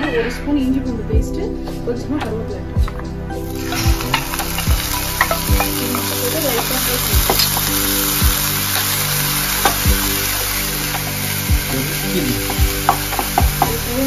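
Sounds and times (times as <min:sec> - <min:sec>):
paste sizzling in hot oil: 0:03.4 - 0:14.0.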